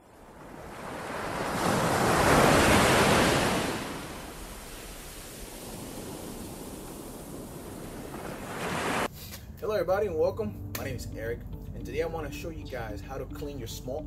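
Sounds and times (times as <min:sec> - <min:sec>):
ocean waves breaking: 0:00.0 - 0:09.1.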